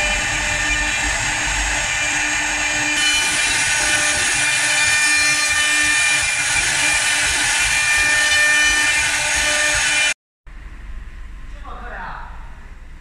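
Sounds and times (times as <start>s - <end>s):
cutter hissing on wood: 0.0s - 10.1s
lathe motor whine: 0.0s - 10.2s.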